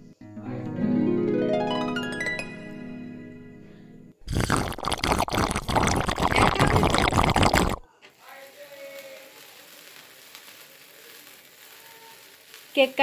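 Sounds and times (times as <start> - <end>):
sparkler candle sizzling: 4.3 - 13.0
loud crackling and rustling: 8.2 - 13.0.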